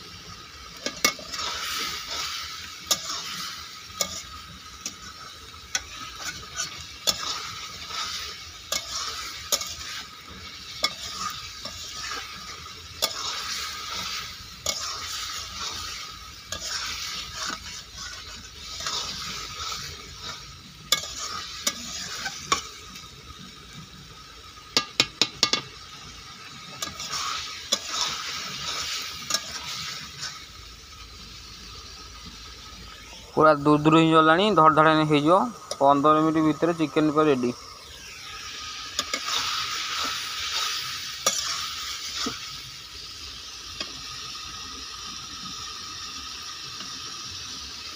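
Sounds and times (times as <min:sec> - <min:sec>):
food sizzling in a pan: 0:00.0 - 0:47.9
spatula scraping and knocking pan: 0:00.8 - 0:22.7, 0:24.8 - 0:25.7, 0:26.8 - 0:30.3.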